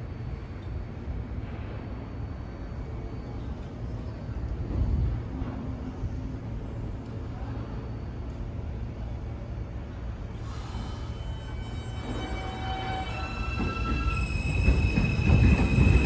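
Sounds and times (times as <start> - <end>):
train rumbling on elevated track: 0.0 - 16.0
hiss: 10.3 - 11.7
steel wheels squealing on rails: 10.3 - 16.0.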